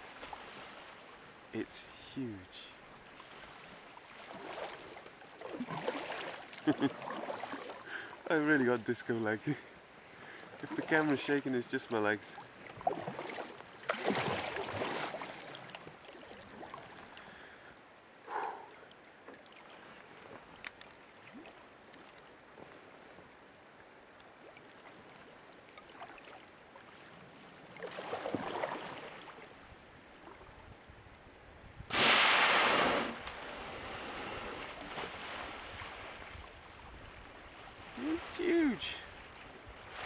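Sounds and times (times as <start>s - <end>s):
soft water rushes: 0.0s - 40.0s
whale blowing: 18.2s - 18.9s, 31.9s - 34.8s.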